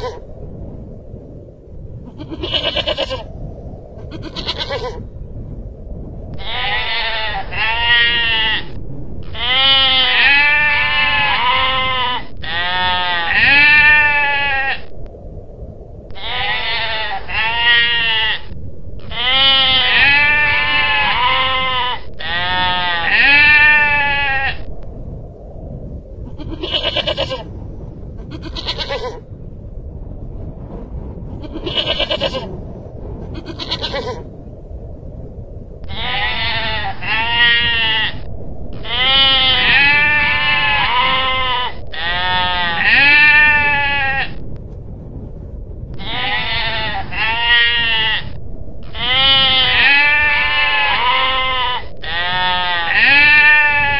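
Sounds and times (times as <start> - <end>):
goral rapid repeated bleats: 49.0 - 53.9.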